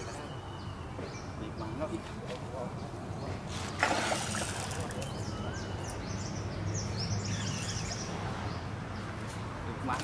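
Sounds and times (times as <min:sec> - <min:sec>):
fish splashing at surface: 0:03.7 - 0:05.1.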